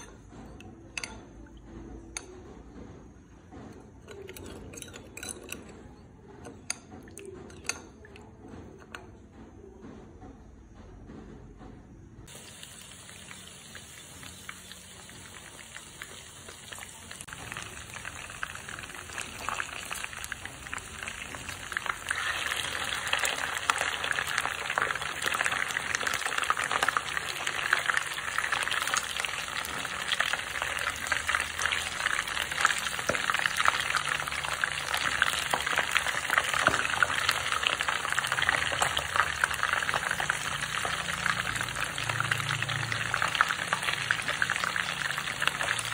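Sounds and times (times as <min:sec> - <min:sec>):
fish sizzling in hot oil: 0:12.3 - 0:45.9.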